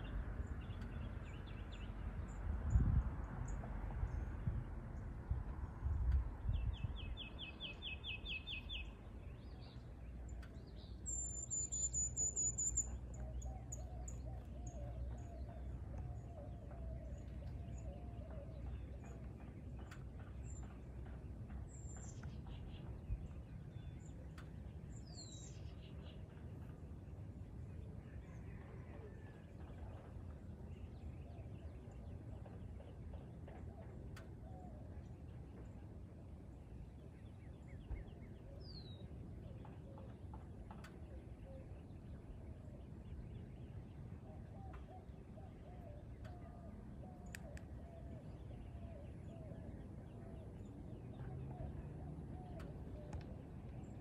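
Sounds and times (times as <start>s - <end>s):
steady low rumble: 0.0s - 11.4s, 12.1s - 28.4s
low wavering bird song: 0.0s - 54.0s.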